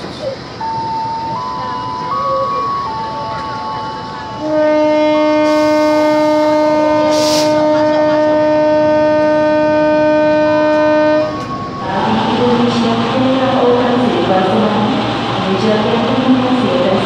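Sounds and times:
locomotive air horn blast: 4.4s - 11.8s.

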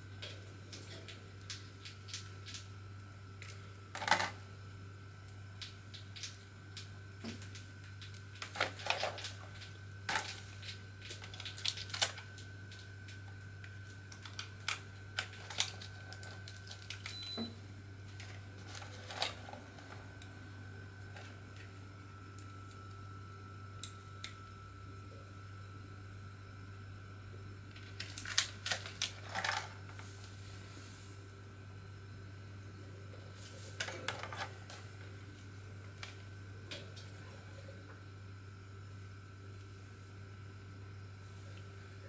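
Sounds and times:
low electrical hum: 0.0s - 42.0s
cable and packaging handling: 7.3s - 17.3s, 18.1s - 20.2s, 27.7s - 30.2s.

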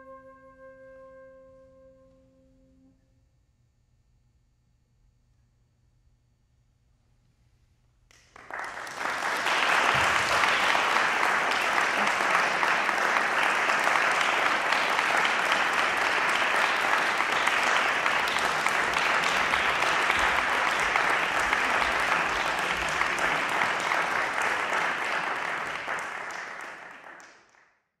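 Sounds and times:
audience applauding: 8.1s - 27.7s.

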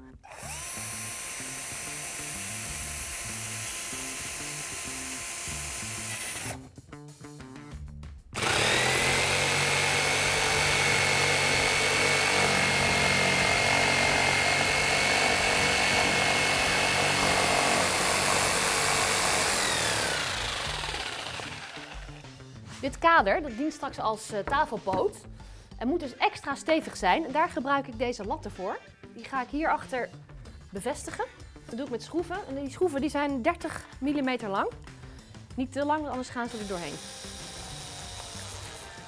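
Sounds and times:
electric drill boring wood: 0.3s - 6.6s, 8.4s - 22.2s, 36.4s - 39.0s
jigsaw cutting with high whine: 0.3s - 6.6s, 8.4s - 22.2s, 36.5s - 39.0s.

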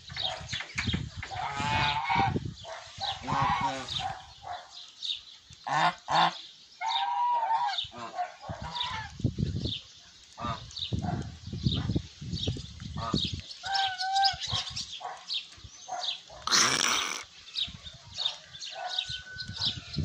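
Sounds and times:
geese honking: 1.3s - 4.1s, 5.6s - 9.2s.

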